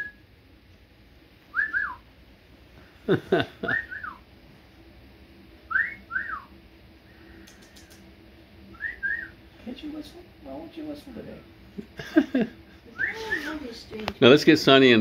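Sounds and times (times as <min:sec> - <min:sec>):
person whistling: 0:01.5 - 0:02.0, 0:05.7 - 0:06.5, 0:08.7 - 0:09.4.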